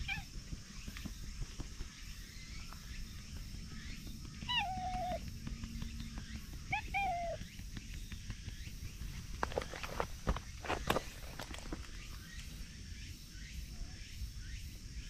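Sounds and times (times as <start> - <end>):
cat meowing: 0.0 - 0.3, 4.5 - 5.2, 6.7 - 7.4.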